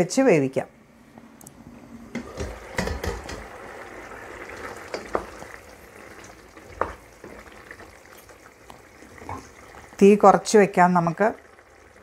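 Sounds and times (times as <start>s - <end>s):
curry boiling in a saucepan: 0.8s - 12.0s
spoon knocking against pan: 2.2s - 3.5s
wooden spoon stirring: 4.5s - 9.9s.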